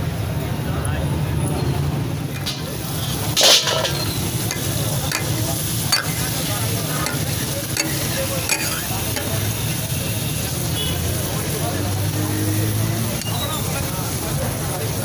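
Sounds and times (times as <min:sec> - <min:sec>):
tomatoes sizzling in oil: 0:02.2 - 0:15.0
spatula clicking on griddle: 0:02.3 - 0:09.5.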